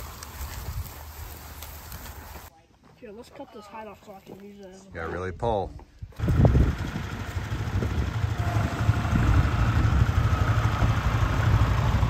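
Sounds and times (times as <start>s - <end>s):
tractor diesel engine running: 6.2s - 12.0s.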